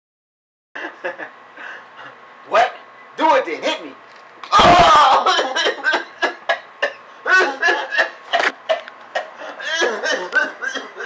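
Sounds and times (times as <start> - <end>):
man crying out in outbursts: 4.5 - 5.9.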